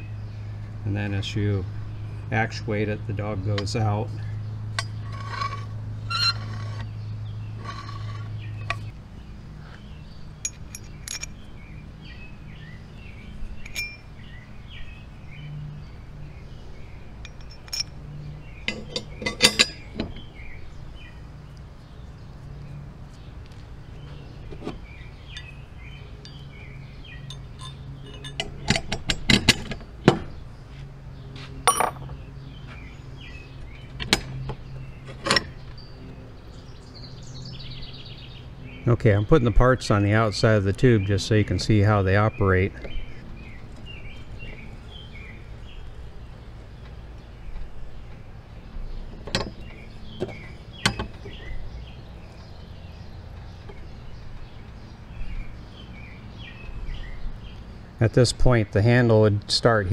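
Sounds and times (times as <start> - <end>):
metal parts clinking on bench: 10.4 - 11.4, 13.6 - 14.1, 17.2 - 18.0, 18.7 - 19.8, 31.6 - 32.1.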